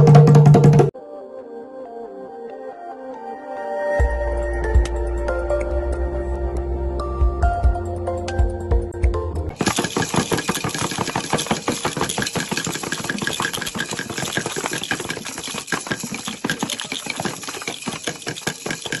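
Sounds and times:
hand drums beating rapidly: 0:00.0 - 0:00.9, 0:09.6 - 0:19.0
shakers: 0:09.5 - 0:19.0
frame drum: 0:09.6 - 0:19.0.

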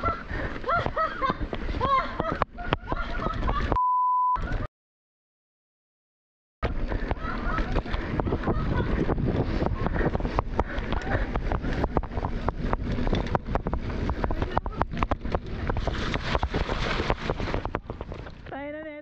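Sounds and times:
wind buffeting microphone: 0:00.0 - 0:03.8, 0:06.6 - 0:18.6
bike chain and frame rattling: 0:06.6 - 0:18.6
tyres rumbling over rough ground: 0:06.6 - 0:18.9.

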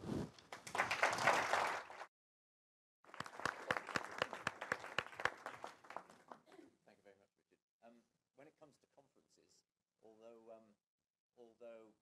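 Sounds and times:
audience applauding: 0:00.5 - 0:02.1, 0:03.1 - 0:06.5.

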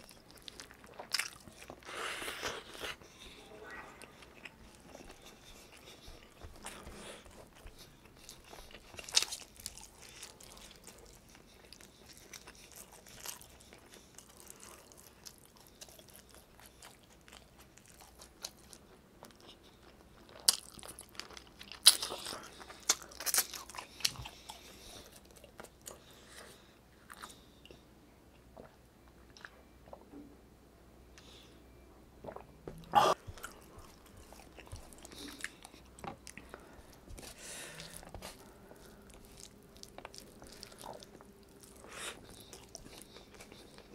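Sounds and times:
food crunching: 0:00.0 - 0:03.4, 0:04.0 - 0:26.4, 0:32.2 - 0:43.9
person chewing food: 0:00.0 - 0:03.4, 0:04.0 - 0:30.1, 0:31.2 - 0:43.9.

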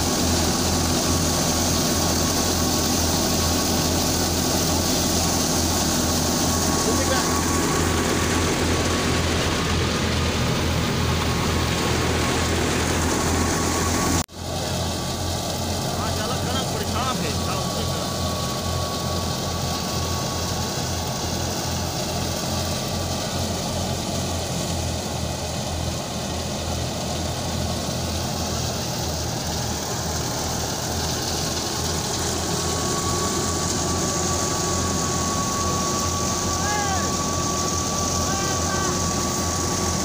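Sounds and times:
thresher engine drone: 0:00.0 - 0:40.0
thin high whine: 0:29.4 - 0:40.0.

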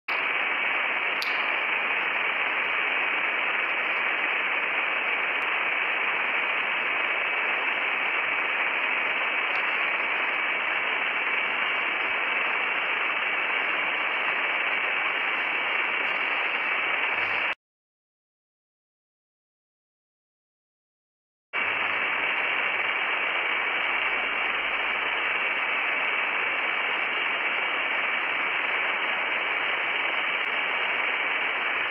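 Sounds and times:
faint high whine: 0:00.1 - 0:17.6
static hiss: 0:00.1 - 0:17.6, 0:21.6 - 0:31.9.

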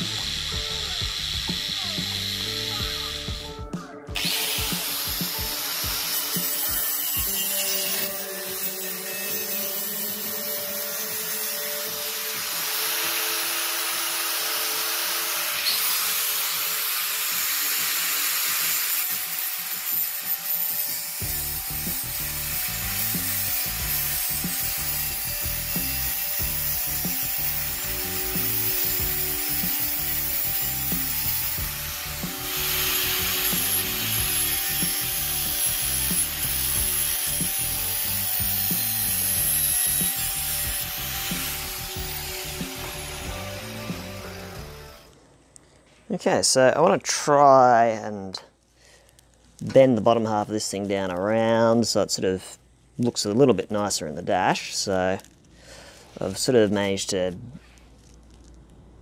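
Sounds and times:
angle grinder cutting steel sheet: 0:00.0 - 0:03.5, 0:04.2 - 0:45.1.

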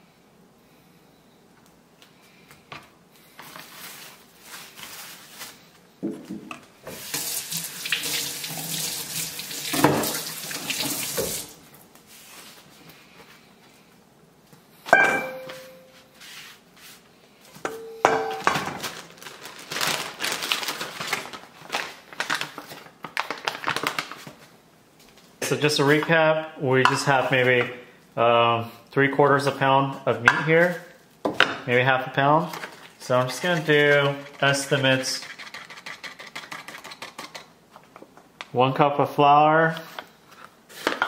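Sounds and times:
tap running into sink: 0:09.6 - 0:11.4
metal bowl knocked and ringing: 0:14.9 - 0:16.0, 0:17.7 - 0:18.6.

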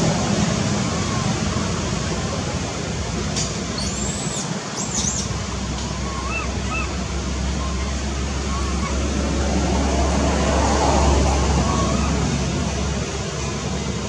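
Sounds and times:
steady outdoor noise: 0:00.0 - 0:14.0
low squeaky calls: 0:03.7 - 0:09.6, 0:11.1 - 0:12.4.

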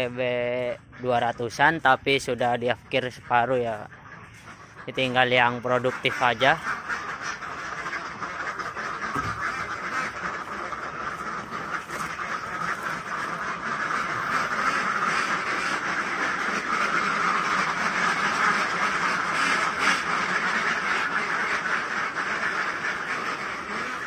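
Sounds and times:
ducks quacking: 0:00.0 - 0:24.0.

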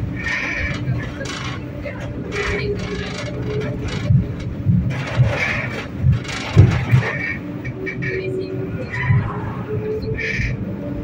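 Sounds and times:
tram rumbling: 0:00.0 - 0:11.0
low thumps: 0:03.1 - 0:07.2.

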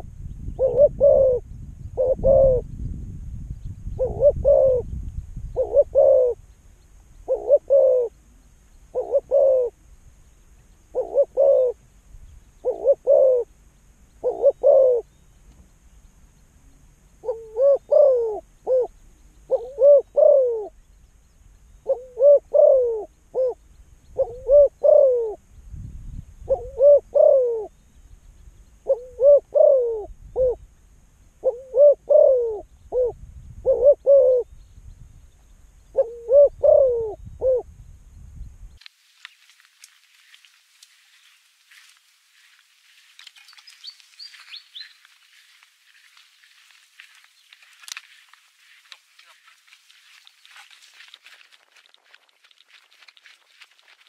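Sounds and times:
dove cooing: 0:00.6 - 0:01.4, 0:02.0 - 0:02.6, 0:04.0 - 0:04.9, 0:05.6 - 0:06.4, 0:07.2 - 0:09.8, 0:10.9 - 0:11.8, 0:12.6 - 0:13.5, 0:14.2 - 0:15.2, 0:17.2 - 0:20.8, 0:21.8 - 0:25.4, 0:26.4 - 0:27.7, 0:28.8 - 0:30.6, 0:31.4 - 0:34.5, 0:35.9 - 0:37.7.

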